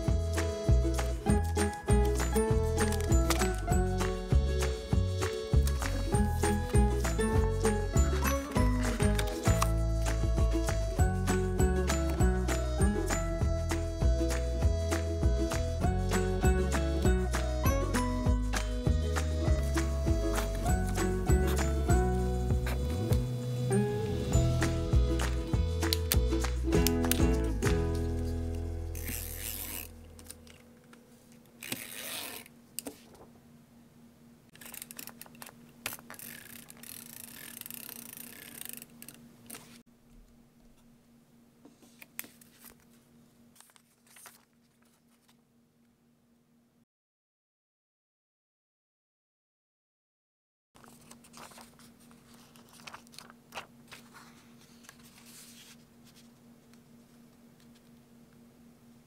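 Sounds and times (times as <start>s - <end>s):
background music: 0.0s - 30.0s
tape rasping on paper: 28.9s - 30.0s
plastic sheet crinkling: 50.8s - 55.8s.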